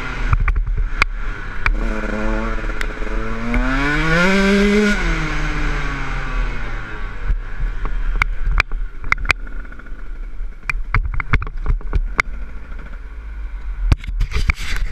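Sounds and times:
wind rumble on microphone: 0:00.0 - 0:05.7, 0:13.6 - 0:14.9
motorcycle engine: 0:00.0 - 0:14.5
knocks and clatter from bike: 0:00.3 - 0:01.9, 0:07.3 - 0:13.1.

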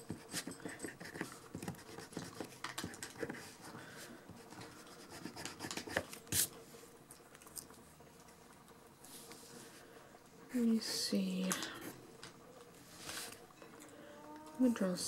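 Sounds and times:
pencil scratching on paper: 0:00.0 - 0:03.7, 0:04.4 - 0:06.0.

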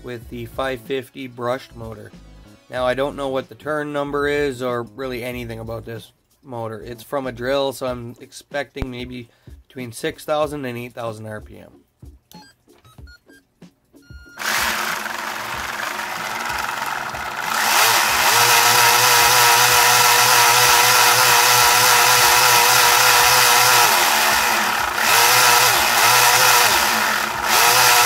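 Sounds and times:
blower motor whining: 0:14.4 - 0:28.0
steady motor whine: 0:14.4 - 0:28.0.

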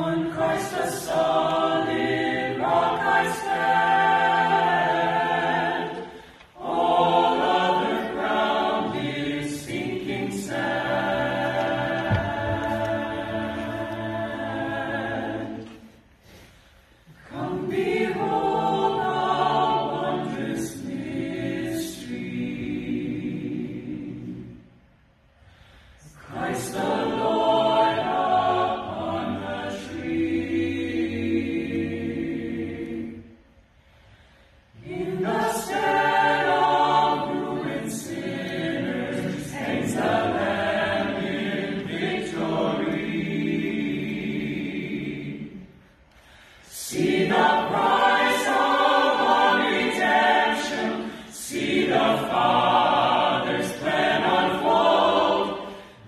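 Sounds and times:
a cappella choir singing: 0:00.0 - 0:56.0.

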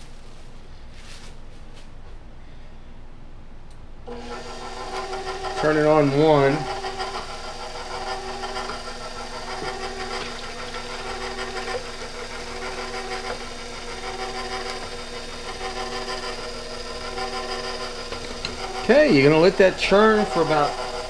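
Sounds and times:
stand mixer motor whining: 0:04.1 - 0:21.0.

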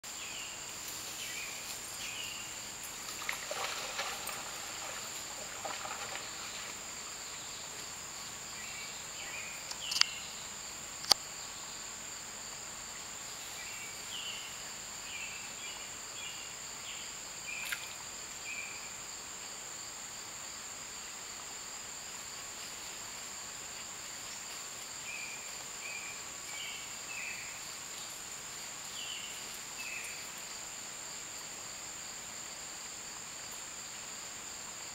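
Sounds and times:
insects chirring drone: 0:00.0 - 0:34.9
short insect chirps: 0:00.1 - 0:11.8, 0:13.2 - 0:19.0, 0:22.5 - 0:31.4.

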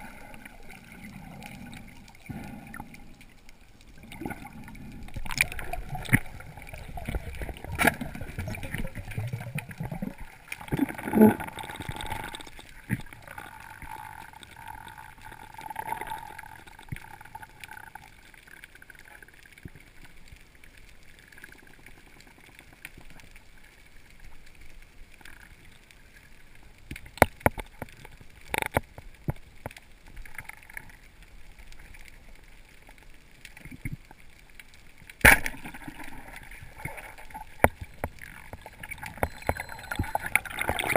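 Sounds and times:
underwater low hiss: 0:00.0 - 0:20.2.

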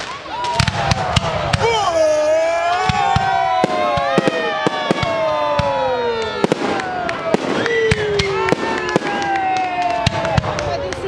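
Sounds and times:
firework crackling: 0:00.0 - 0:11.0
firework shells bursting: 0:02.9 - 0:10.4.

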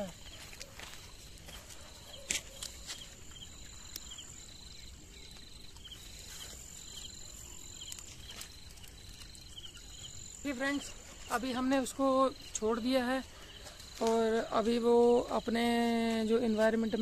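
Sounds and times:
insect short chirps: 0:00.0 - 0:11.5
insect high-pitched trill: 0:00.0 - 0:17.0.

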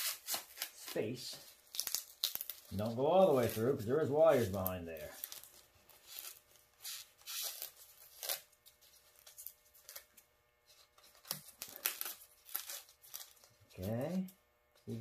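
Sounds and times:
knife cutting and scraping foam: 0:00.0 - 0:01.1.

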